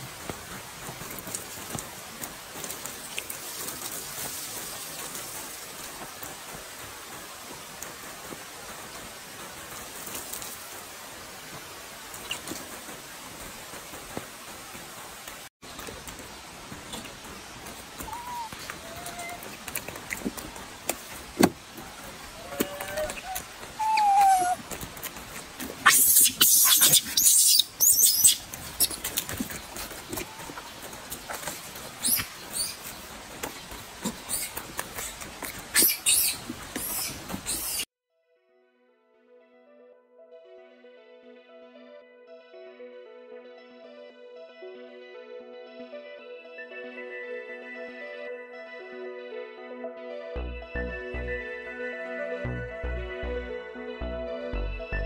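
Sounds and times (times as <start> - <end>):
raindrops ticking: 0.0 - 23.8, 24.5 - 37.5
steady rain falling: 0.0 - 37.9
monkey squeaks: 23.0 - 24.6, 25.8 - 29.2, 32.0 - 32.8, 35.7 - 37.8.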